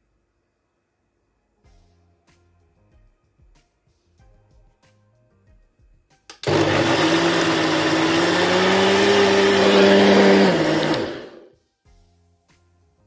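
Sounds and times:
blender switch click: 6.3 - 11.4
blender motor running: 6.4 - 11.5.

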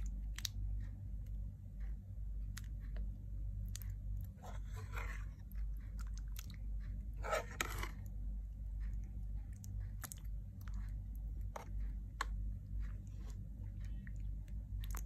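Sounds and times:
steady low hum: 0.0 - 15.0
spoon scraping pan: 4.4 - 5.3, 7.2 - 8.0.

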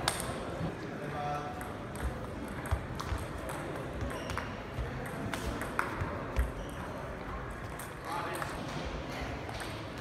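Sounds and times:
table tennis ball clicking: 1.6 - 6.6.

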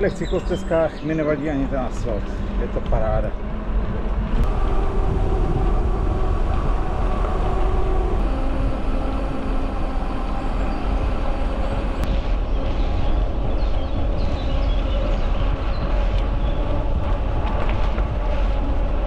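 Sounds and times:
bicycle tyres rolling on asphalt: 0.0 - 19.0
faint steady hum: 0.0 - 19.0
wind rumble on microphone: 0.0 - 19.0.

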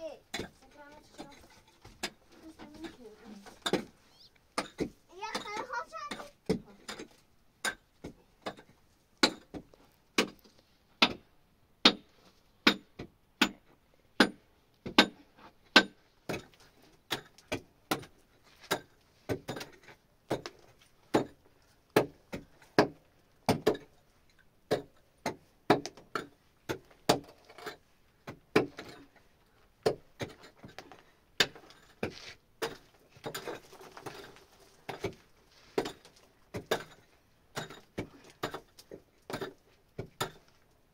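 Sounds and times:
rustling scrape: 31.8 - 32.4, 33.1 - 36.2.

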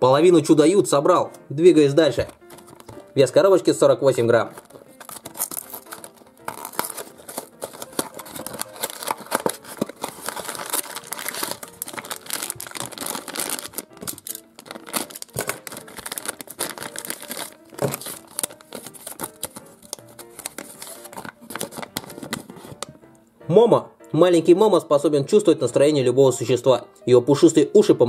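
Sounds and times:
background music: 0.0 - 28.0
cardboard and plastic crinkling: 2.1 - 3.4, 4.4 - 23.0.

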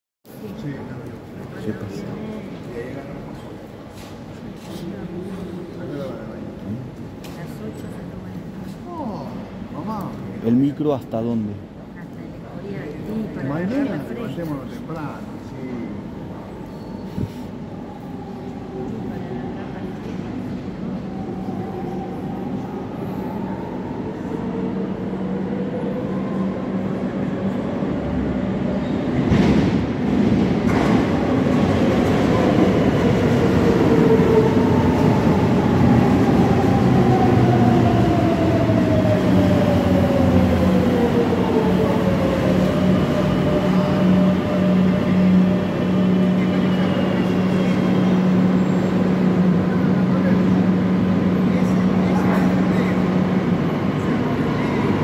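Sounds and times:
train rumble: 14.5 - 55.0.

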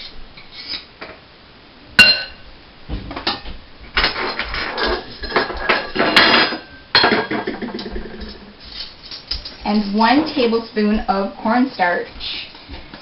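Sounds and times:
metal utensils clattering: 4.0 - 10.6.

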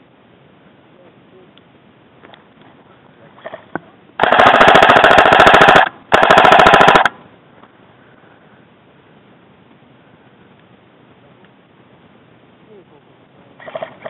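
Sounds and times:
airsoft rifle rapid fire: 4.2 - 7.2.

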